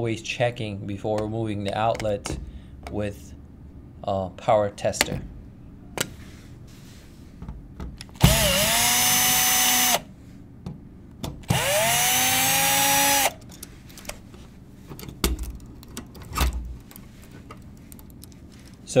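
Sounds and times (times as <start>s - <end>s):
cordless drill motor whine: 8.2s - 10.1s, 11.5s - 13.4s.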